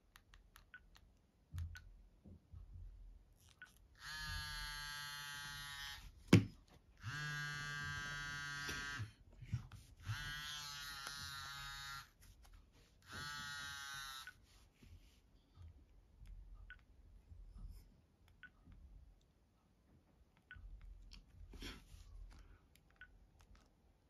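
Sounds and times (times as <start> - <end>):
mobile phone buzzing alert: 7.0 - 9.1.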